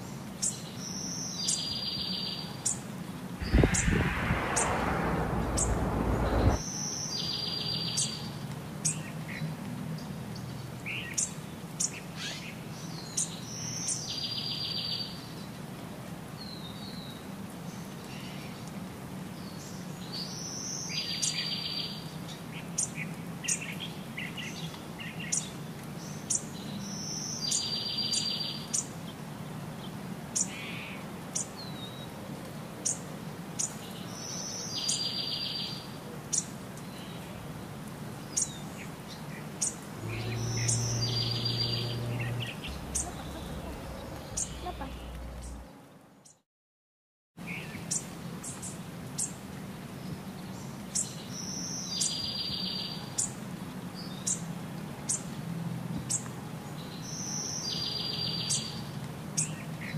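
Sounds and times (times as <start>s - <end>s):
loud rushing noise: 3.4s - 6.6s, 39.9s - 45.8s
small birds chirping: 38.3s - 46.4s
buzzy trilled bird phrase: 40.0s - 45.6s.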